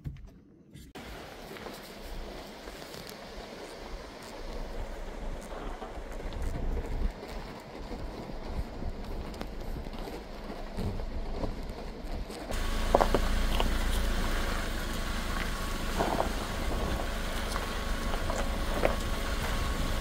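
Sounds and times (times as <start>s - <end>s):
car engine and tyres rumbling: 0.8s - 20.0s
gravel clicking under tyres: 1.0s - 20.0s
wind on microphone: 3.9s - 13.1s, 15.6s - 20.0s.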